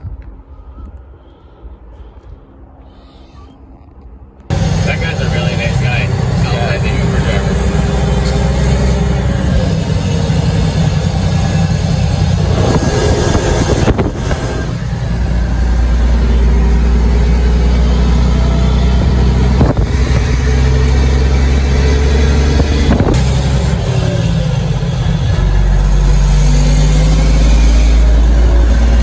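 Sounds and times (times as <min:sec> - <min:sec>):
truck engine drone from cab: 0:00.0 - 0:29.0.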